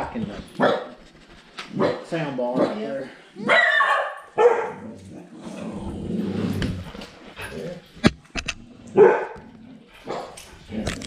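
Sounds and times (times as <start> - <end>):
dog barking: 0.6 - 0.9, 1.7 - 4.8, 9.0 - 9.4, 10.0 - 10.4
dog rumbling: 4.7 - 11.0.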